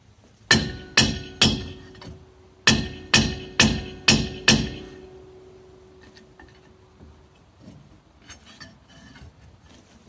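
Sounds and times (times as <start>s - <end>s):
hammer striking ringing brake drum: 0.5s - 6.2s.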